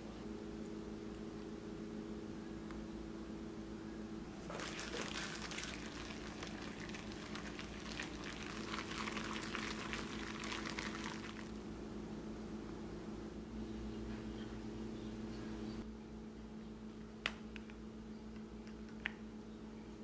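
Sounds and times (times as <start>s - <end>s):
faint steady hum: 0.0s - 20.0s
wet squishing of stirred paste: 4.4s - 11.6s.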